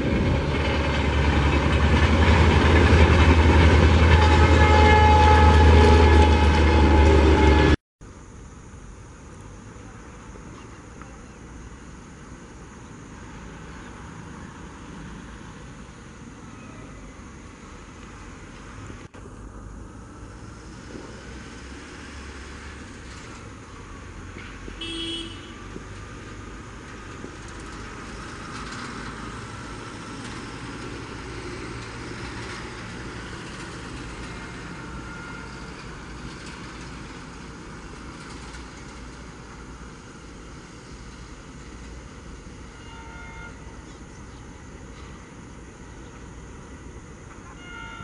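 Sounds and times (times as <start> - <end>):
distant diesel locomotive rumble: 0.0 - 48.0
train horn toot: 4.0 - 7.8, 24.8 - 25.7, 34.3 - 35.9, 42.6 - 43.8, 47.4 - 48.0.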